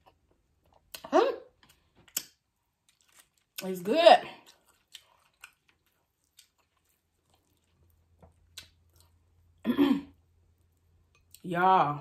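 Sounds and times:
chewing: 0:00.0 - 0:03.6, 0:04.3 - 0:09.4.

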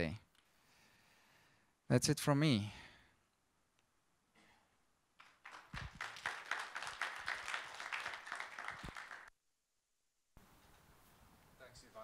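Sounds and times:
audience applauding: 0:05.2 - 0:09.3.

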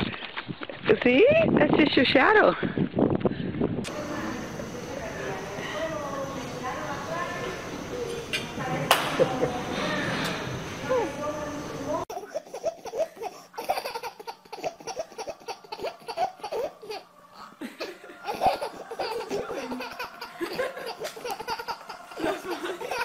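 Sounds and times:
baby laughing: 0:12.1 - 0:23.0.

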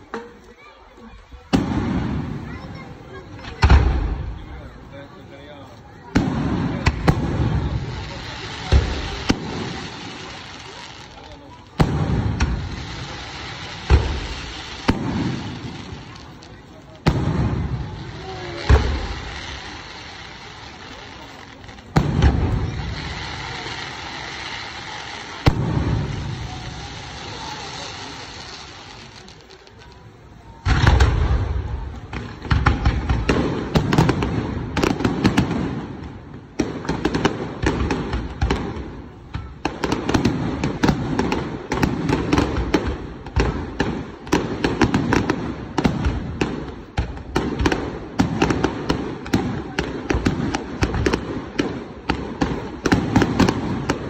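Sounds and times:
rapid firework bangs and pops: 0:00.0 - 0:54.0
firework bang: 0:01.5 - 0:04.6, 0:11.2 - 0:16.4, 0:17.0 - 0:20.1, 0:21.9 - 0:24.6, 0:25.3 - 0:29.0, 0:30.6 - 0:54.0.

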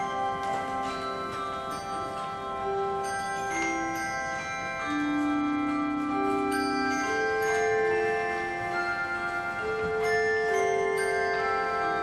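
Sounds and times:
handbell choir playing hymn: 0:00.0 - 0:12.0.

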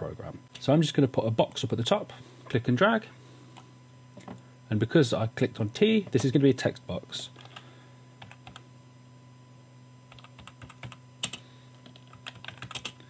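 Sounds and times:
computer keyboard typing: 0:08.2 - 0:08.6, 0:10.1 - 0:13.0.

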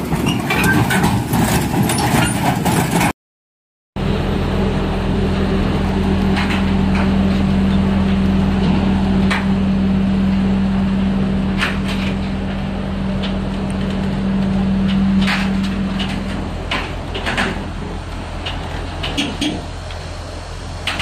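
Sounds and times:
tracks knocking on steel ramps: 0:00.0 - 0:03.1
diesel engine humming: 0:04.0 - 0:21.0.

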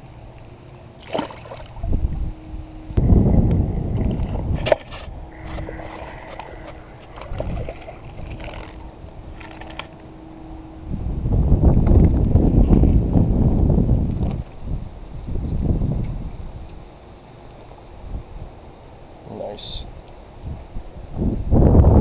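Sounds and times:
faint steady hum: 0:00.0 - 0:22.0
fish splashing into water: 0:01.0 - 0:01.9, 0:03.9 - 0:09.7
wind buffeting microphone: 0:01.6 - 0:16.9, 0:18.0 - 0:18.7, 0:19.9 - 0:22.0.

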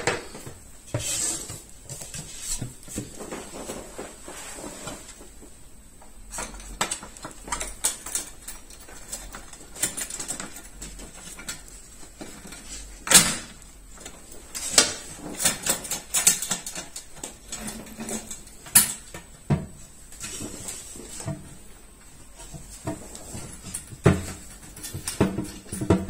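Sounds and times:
toilet seat clicks and knocks: 0:23.9 - 0:26.0.

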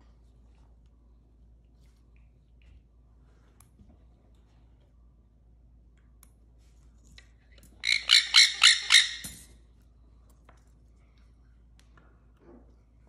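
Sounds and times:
parrot squawking: 0:07.8 - 0:09.5.

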